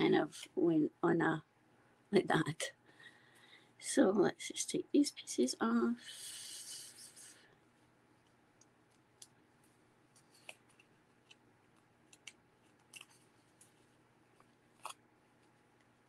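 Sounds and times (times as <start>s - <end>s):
small clicks and crinkles: 7.8s - 16.0s.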